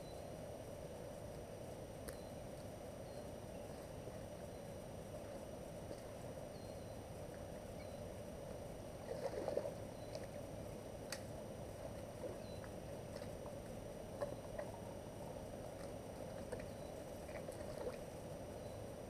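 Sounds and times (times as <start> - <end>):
faint chirps: 0.0 - 0.4, 2.0 - 8.3, 9.1 - 10.4, 12.2 - 12.8, 16.5 - 19.0.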